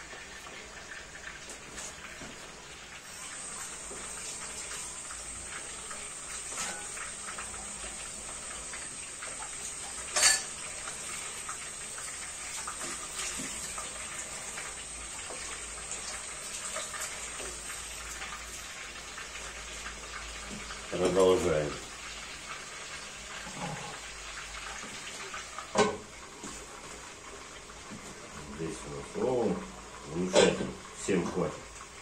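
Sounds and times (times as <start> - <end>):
food sizzling in a frying pan: 0.0 - 32.0.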